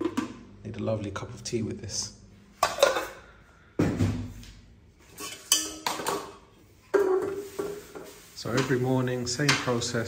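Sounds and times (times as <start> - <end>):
metal pot and lid clanking: 5.1 - 7.4.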